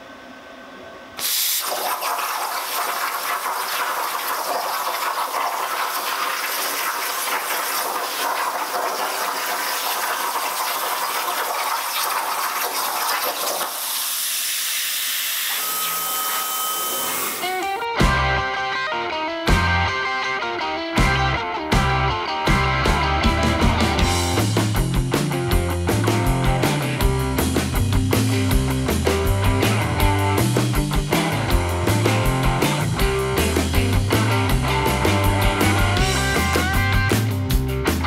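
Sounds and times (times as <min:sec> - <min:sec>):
plasma cutter arc hissing: 0:01.2 - 0:17.6.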